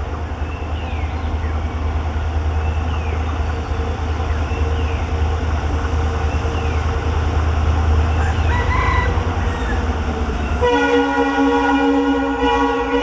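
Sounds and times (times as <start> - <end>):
diesel locomotive rumbling: 0.0 - 13.0
train horn note: 10.5 - 13.0.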